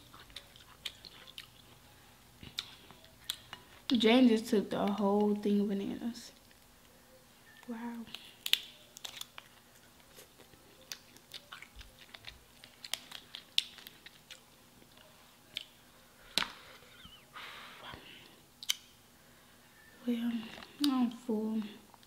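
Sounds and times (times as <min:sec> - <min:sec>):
chewing: 0:00.0 - 0:03.9, 0:07.5 - 0:17.1
lobster shell cracking: 0:08.1 - 0:09.6, 0:10.8 - 0:14.4.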